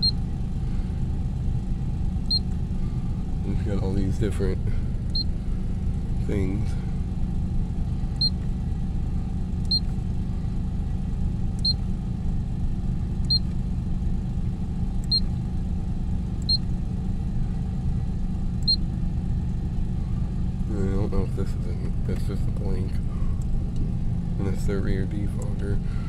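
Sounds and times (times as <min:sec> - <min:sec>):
short high dashboard beeps: 0:00.0 - 0:00.3, 0:02.2 - 0:02.6, 0:05.1 - 0:05.4, 0:08.1 - 0:08.4, 0:09.6 - 0:10.0, 0:11.6 - 0:11.9, 0:13.2 - 0:13.6, 0:15.0 - 0:15.4, 0:16.4 - 0:16.7, 0:18.6 - 0:18.9
car engine idling: 0:00.0 - 0:26.0.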